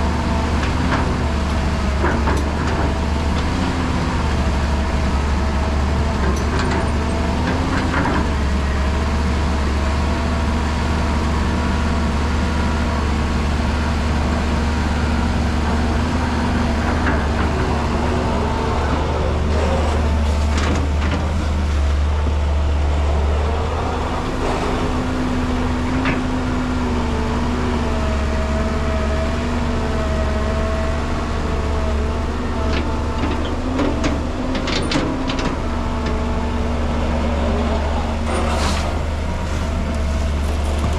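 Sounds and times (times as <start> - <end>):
excavator diesel engine running: 0.0 - 40.9.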